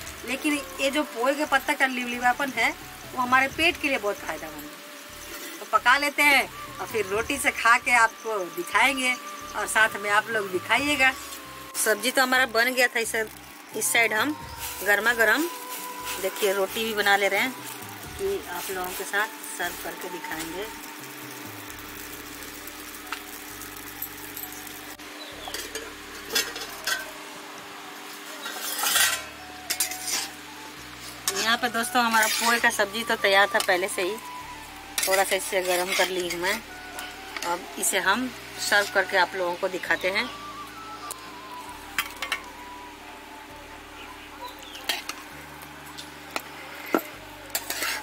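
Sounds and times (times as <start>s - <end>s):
metal scraping: 25.5s - 27.2s, 28.3s - 32.9s, 34.9s - 36.6s, 46.3s - 48.0s.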